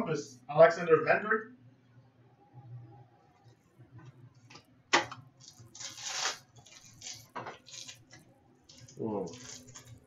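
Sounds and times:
cards rustling: 0:05.4 - 0:08.1, 0:08.7 - 0:10.0
wrapper crinkling: 0:05.4 - 0:10.0
wrapper tearing snap: 0:05.8 - 0:06.4.

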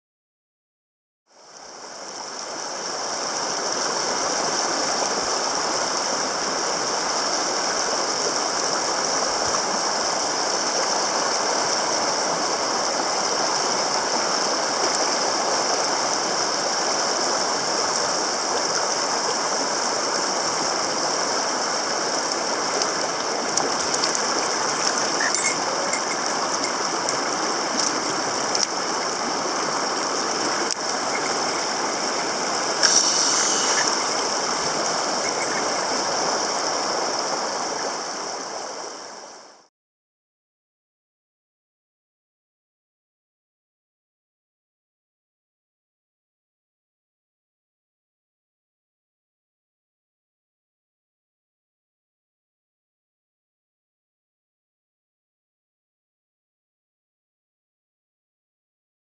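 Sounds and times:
stream rushing over rocks: 0:01.3 - 0:39.7
high-pitched buzz: 0:32.7 - 0:35.8.

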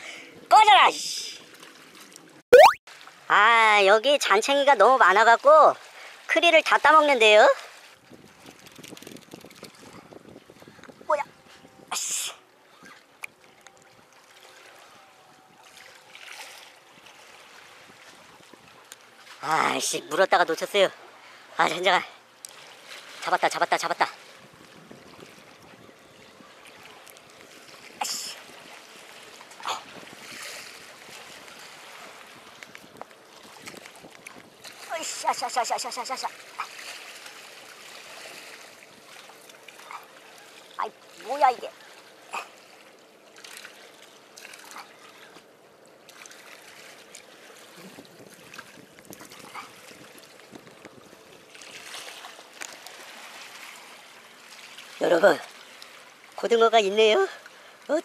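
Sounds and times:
sea water lapping on concrete: 0:00.0 - 0:58.0
sea water splashing on concrete: 0:26.6 - 0:41.7, 0:43.4 - 0:56.4.

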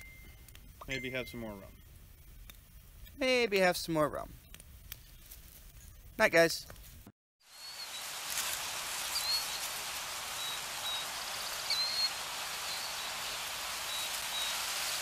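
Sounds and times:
outdoor ambience hiss: 0:00.0 - 0:15.0
high bird chirps: 0:09.0 - 0:09.7, 0:10.4 - 0:14.6.

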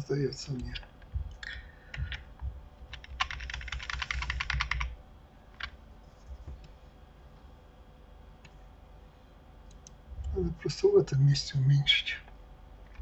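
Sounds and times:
computer keyboard and mouse clicking: 0:00.6 - 0:05.8.

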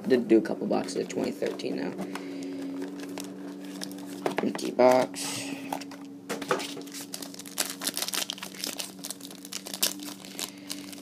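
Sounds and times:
foil wrapper crinkling and tearing: 0:00.9 - 0:04.2, 0:06.6 - 0:11.0.

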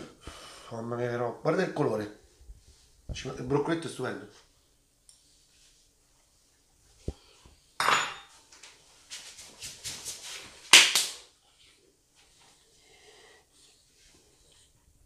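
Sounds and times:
hand clap: 0:10.7 - 0:11.3.

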